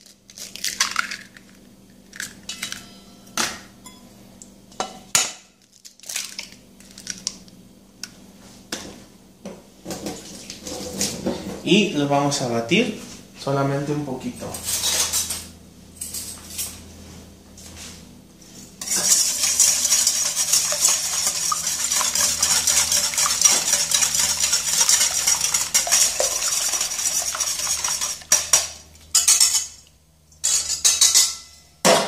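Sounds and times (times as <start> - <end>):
whisk beating eggs in metal bowl: 18.8 - 29.8.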